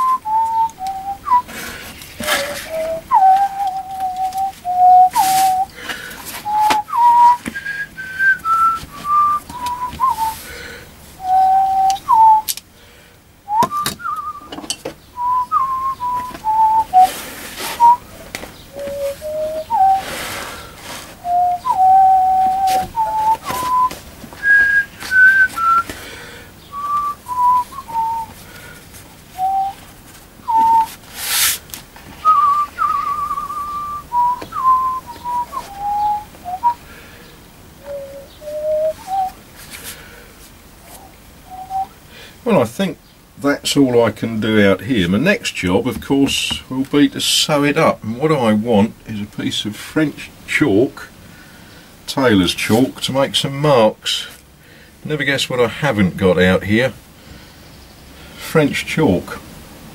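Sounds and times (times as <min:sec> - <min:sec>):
person whistling a tune: 0:00.0 - 0:01.6, 0:02.2 - 0:05.8, 0:06.4 - 0:10.4, 0:11.2 - 0:12.5, 0:13.5 - 0:14.6, 0:15.2 - 0:18.0, 0:18.7 - 0:20.4, 0:21.2 - 0:25.9, 0:26.7 - 0:28.3, 0:29.4 - 0:29.8, 0:30.4 - 0:30.9, 0:32.2 - 0:36.8, 0:37.8 - 0:39.4, 0:41.0 - 0:41.9.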